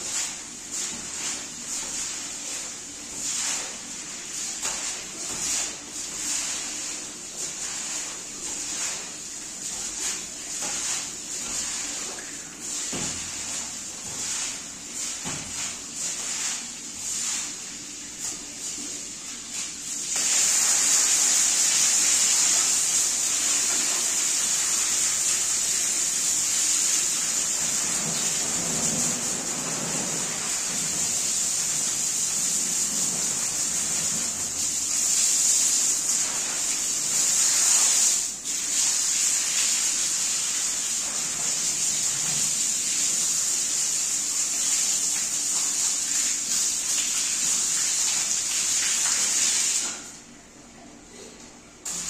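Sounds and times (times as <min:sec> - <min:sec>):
pressure washer spraying water: 0:20.1 - 0:50.0.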